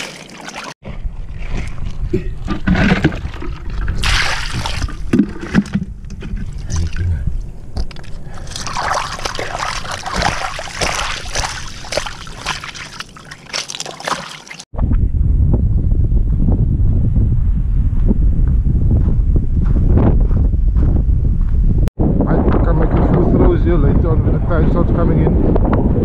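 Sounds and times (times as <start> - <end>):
seawater sloshing over pebbles: 8.0 - 14.6
wind buffeting microphone: 14.7 - 26.0.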